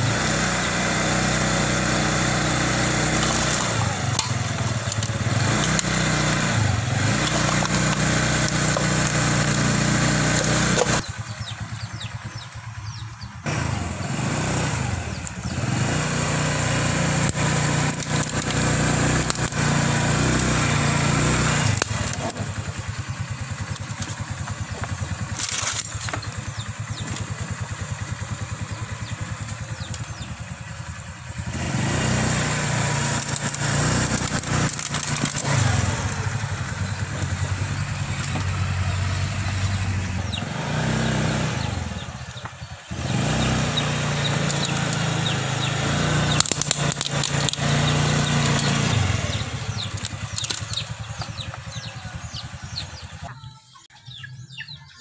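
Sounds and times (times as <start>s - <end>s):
motorbike engine running: 0.0s - 55.0s
circuit boards cracking and snapping: 17.2s - 19.6s, 23.6s - 26.4s, 33.0s - 35.6s, 46.3s - 48.8s, 49.8s - 51.0s.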